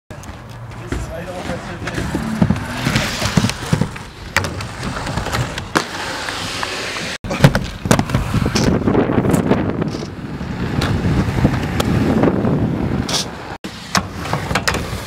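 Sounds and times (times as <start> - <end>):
skates clacking on ground: 0.1 - 10.1
skate wheels rolling on concrete: 0.1 - 15.0.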